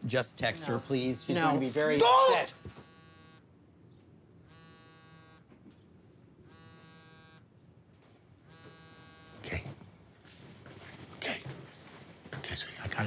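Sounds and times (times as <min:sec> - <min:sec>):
phone vibrating: 0:00.7 - 0:03.5, 0:04.4 - 0:05.6, 0:06.4 - 0:07.5, 0:08.4 - 0:09.8.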